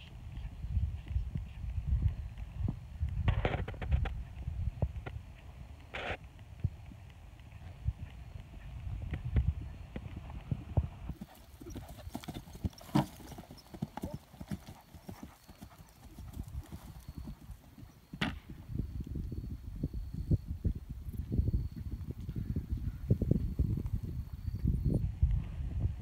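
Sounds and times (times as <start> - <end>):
horse hooves cantering on grass: 0.8 - 18.6.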